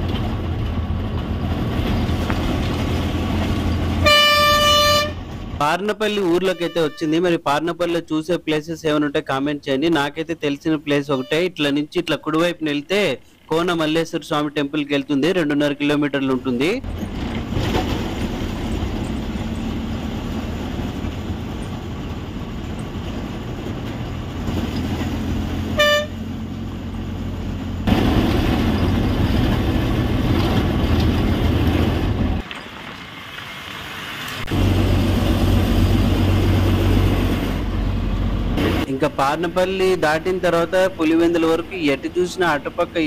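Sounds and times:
bus engine and road noise: 0:00.0 - 0:43.0
bus horn toot: 0:04.0 - 0:05.3, 0:06.4 - 0:07.2, 0:11.1 - 0:11.6, 0:25.7 - 0:26.3.

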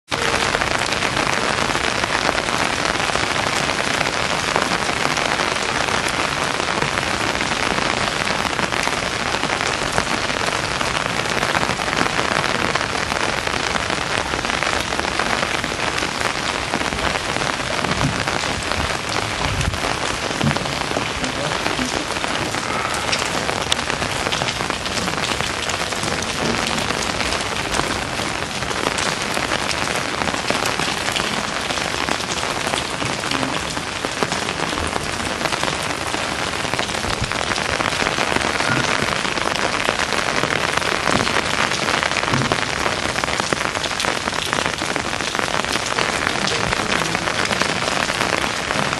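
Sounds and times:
rain falling on water: 0:00.0 - 0:48.9
low thuds: 0:17.7 - 0:22.5.

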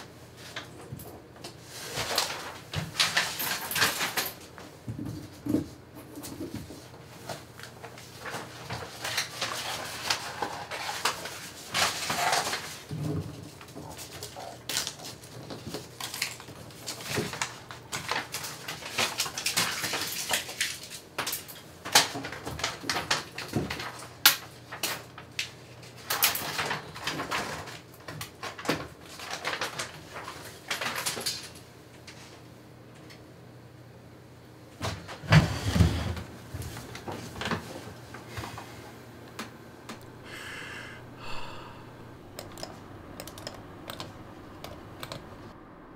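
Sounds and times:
paper rustling: 0:06.1 - 0:21.0, 0:22.0 - 0:31.5
low steady hum: 0:36.2 - 0:45.9
small clicks and knocks: 0:42.4 - 0:45.3.

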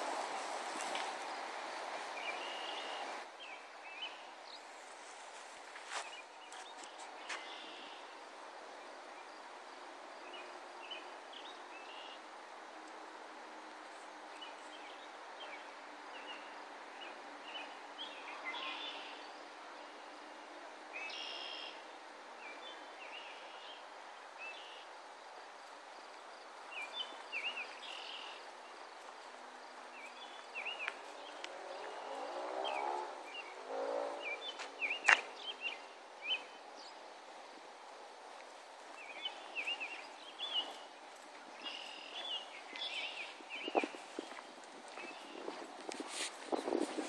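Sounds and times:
outdoor background noise: 0:00.0 - 0:47.0
small birds chirping: 0:02.2 - 0:08.1, 0:14.3 - 0:19.5, 0:26.1 - 0:37.6, 0:38.2 - 0:47.0.

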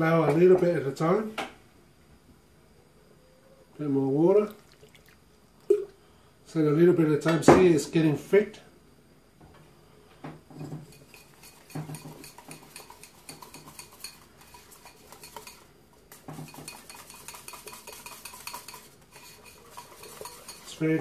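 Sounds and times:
utensil clinking against ceramic bowl: 0:10.8 - 0:21.0.

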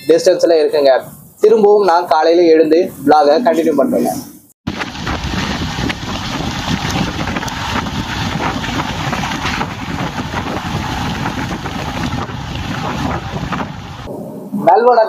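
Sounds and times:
train running gear rumble: 0:04.7 - 0:14.1
wind on microphone: 0:04.7 - 0:15.0.

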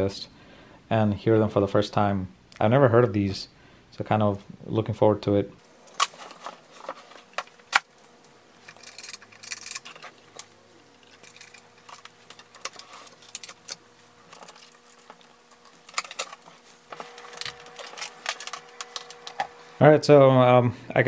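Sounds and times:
cables clicking and rattling: 0:05.8 - 0:19.6.

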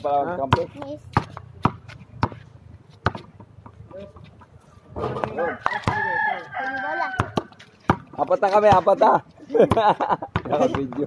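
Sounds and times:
rooster crowing: 0:05.2 - 0:07.6.

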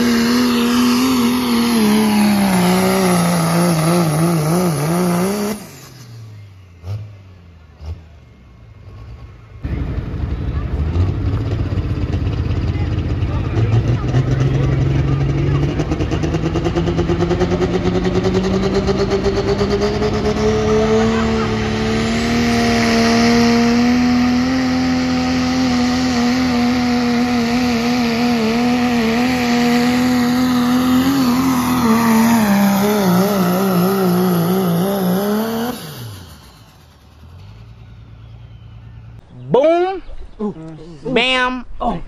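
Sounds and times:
diesel truck engine at full throttle: 0:00.0 - 0:39.3.

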